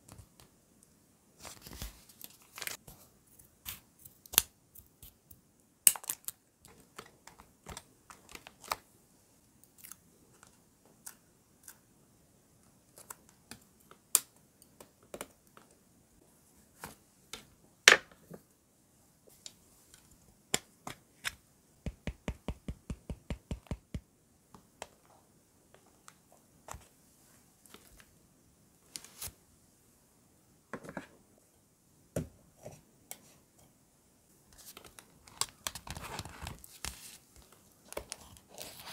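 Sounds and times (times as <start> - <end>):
paper rustling: 34.6 - 38.9.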